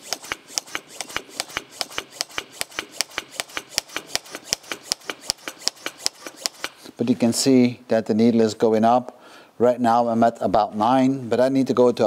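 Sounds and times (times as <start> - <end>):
hand pump rasping strokes: 0.0 - 7.0.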